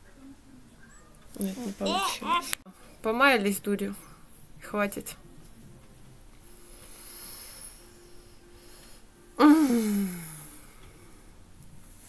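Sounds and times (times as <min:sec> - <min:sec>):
person groaning: 0:09.4 - 0:10.5.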